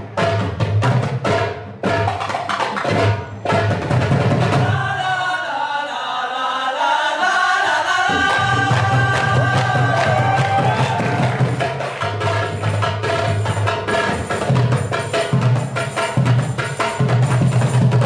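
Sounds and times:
hand drums: 0:00.0 - 0:04.8, 0:08.1 - 0:18.0
group singing in unison: 0:04.5 - 0:11.9.

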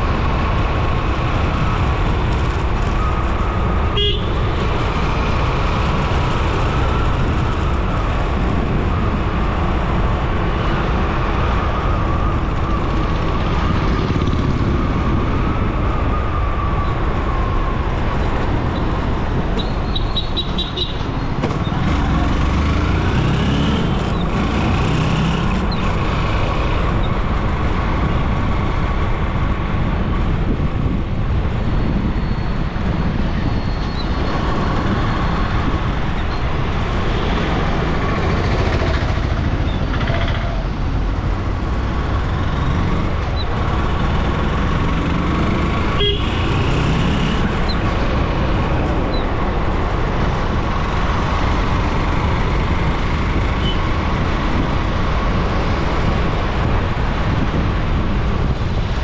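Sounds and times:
vehicle engine hum: 0:00.0 - 0:59.0
wind and road noise: 0:00.0 - 0:59.0
car horn toot: 0:03.9 - 0:04.4, 0:46.0 - 0:46.5.

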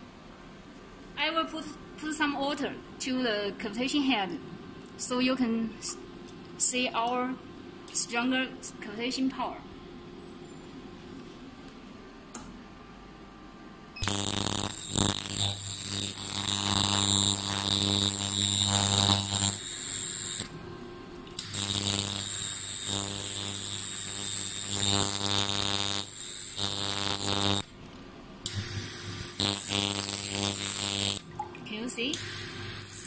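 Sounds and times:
cavitation machine electric buzz: 0:14.0 - 0:27.8, 0:28.4 - 0:31.3, 0:32.1 - 0:33.0.

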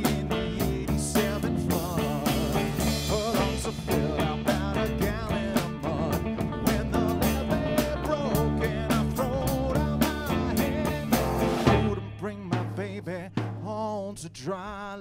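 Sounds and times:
bending lead melody: 0:00.0 - 0:13.0
live band playing: 0:00.0 - 0:13.7.

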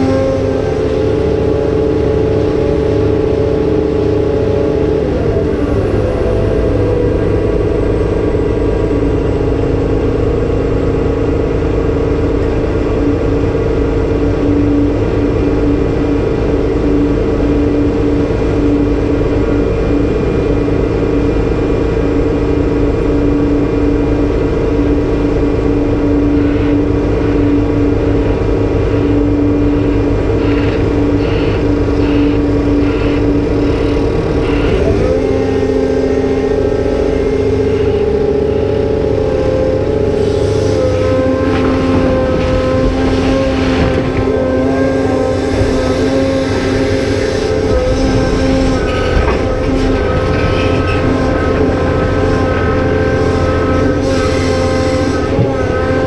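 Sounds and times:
excavator engine under load: 0:00.0 - 0:56.0
low pulsing tone: 0:00.0 - 0:56.0.

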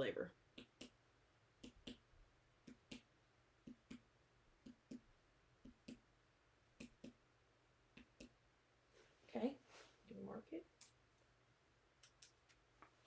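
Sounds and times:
fingertip tapping on belly: 0:02.6 - 0:06.0, 0:06.8 - 0:07.2.

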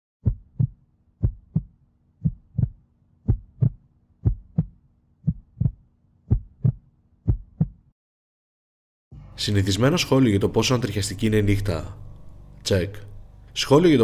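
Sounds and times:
heartbeat double thumps: 0:00.2 - 0:07.9.

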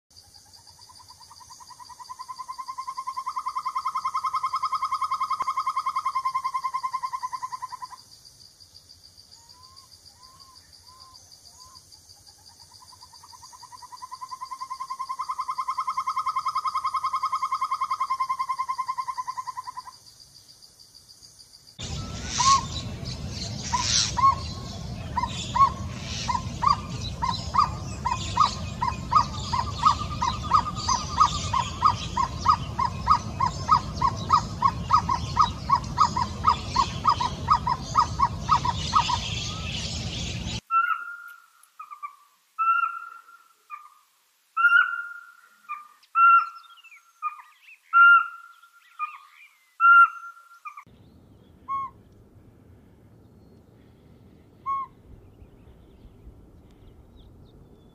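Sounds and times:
background hiss: 0:00.2 - 0:57.9
owlet calling in trills: 0:00.7 - 0:08.0, 0:12.7 - 0:19.9, 0:21.8 - 0:50.9, 0:51.6 - 0:52.1, 0:54.6 - 0:55.1.

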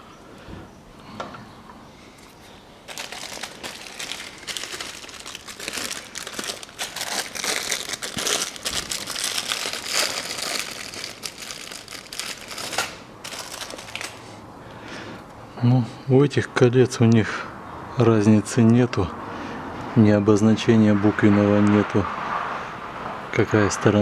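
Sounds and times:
plastic packet crinkling: 0:02.9 - 0:14.2.

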